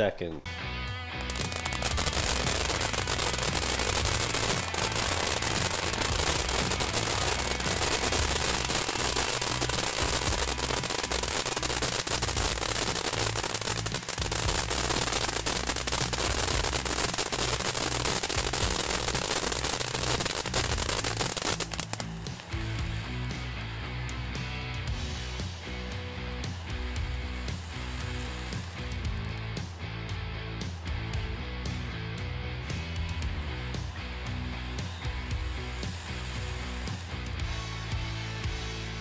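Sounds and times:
fountain firework hissing: 1.2s - 23.8s, 26.6s - 29.4s, 34.9s - 37.8s
firework crackling: 1.2s - 31.9s, 33.7s - 38.1s.

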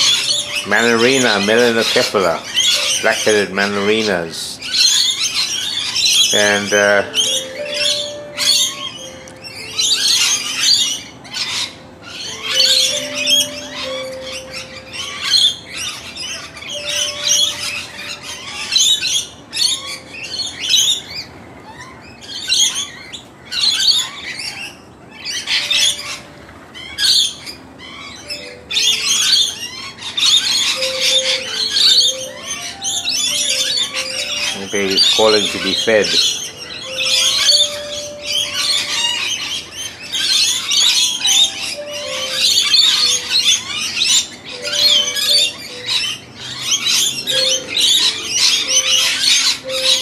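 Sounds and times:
young bird begging call: 0.0s - 15.8s, 28.3s - 50.0s
faint background music: 0.0s - 22.9s, 23.6s - 50.0s
birds chirping and squawking: 0.0s - 50.0s.

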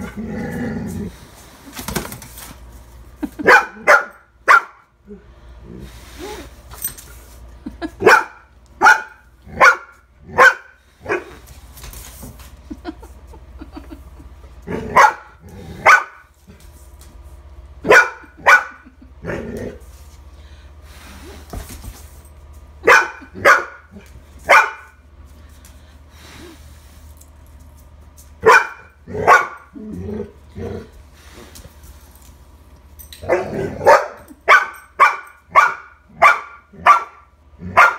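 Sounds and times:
young dog barking: 3.5s - 4.8s, 8.0s - 11.2s, 22.8s - 23.8s, 24.5s - 24.8s, 28.4s - 29.6s, 33.3s - 37.9s.

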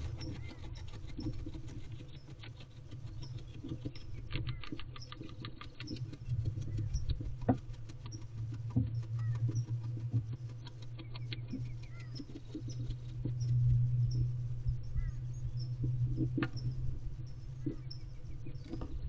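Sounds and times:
owl rustling and scratching: 0.0s - 19.0s
steady low hum: 0.0s - 19.0s.

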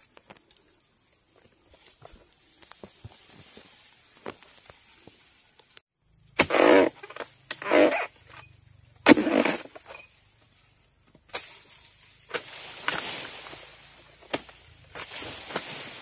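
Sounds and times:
rustling fronds: 0.1s - 5.8s, 11.3s - 16.0s
pole striking palm fronds: 9.0s - 10.0s, 11.3s - 16.0s.

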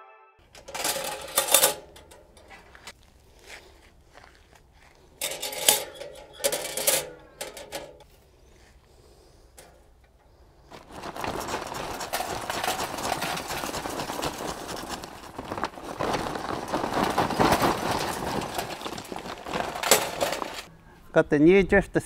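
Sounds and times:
charcoal pouring into metal chimney: 0.4s - 3.0s, 10.3s - 20.7s.

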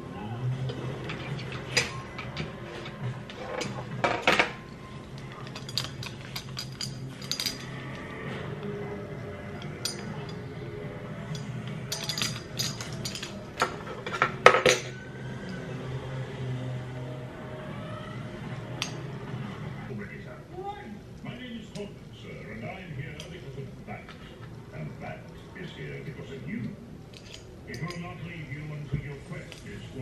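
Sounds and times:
metal earrings clicking and clinking: 4.3s - 8.1s, 9.4s - 10.6s, 11.2s - 15.6s, 18.8s - 19.1s, 27.0s - 28.2s.

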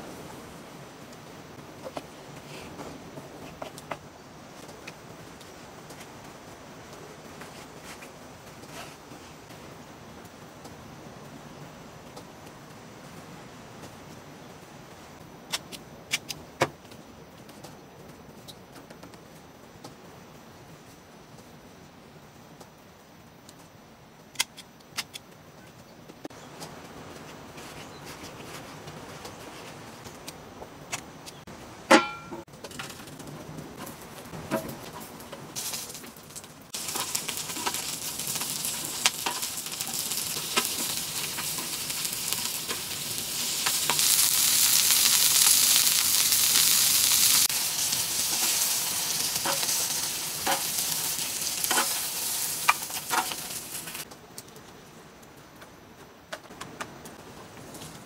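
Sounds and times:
food sizzling on a hot pan: 35.0s - 54.1s.

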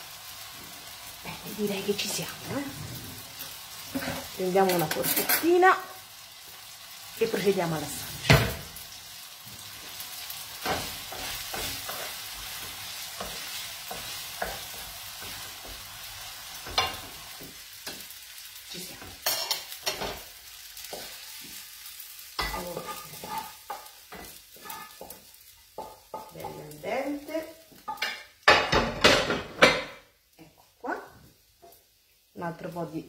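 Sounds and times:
spaghetti sizzling in a pan: 0.0s - 33.0s
wooden spoon scraping a pan: 1.6s - 5.9s, 9.6s - 18.1s, 18.7s - 29.9s.

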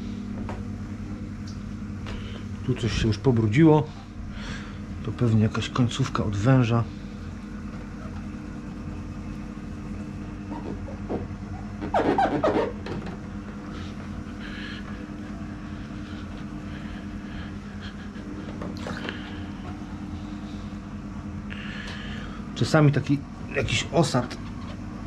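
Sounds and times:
equipment humming: 0.0s - 25.0s
rubbing sound: 11.8s - 12.9s.

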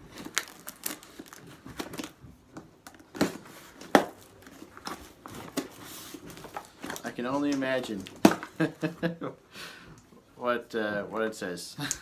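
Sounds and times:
packaging crinkling and tearing: 0.0s - 8.6s.

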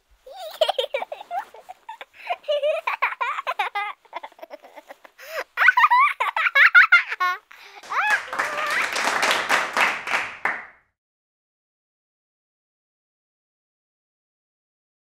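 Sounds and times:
baby giggling: 0.3s - 9.2s.

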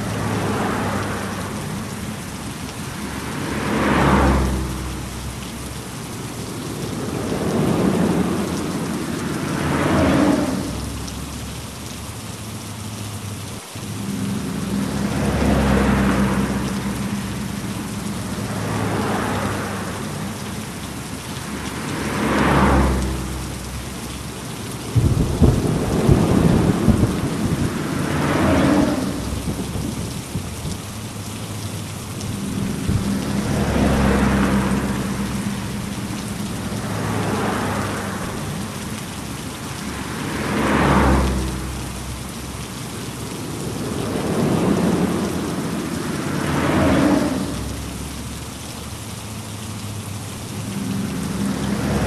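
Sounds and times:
heavy rain: 0.0s - 52.0s
rolling thunder rumbles: 6.4s - 11.0s, 24.9s - 30.8s
crackling thunderclap: 24.9s - 30.8s.

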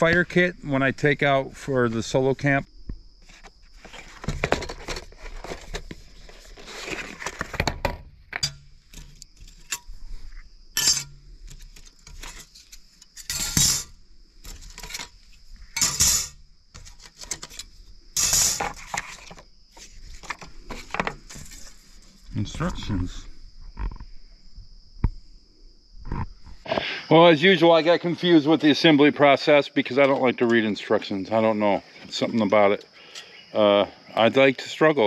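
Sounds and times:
high insect chirr: 0.0s - 35.0s
metal panels clinking on glass: 15.8s - 16.4s.

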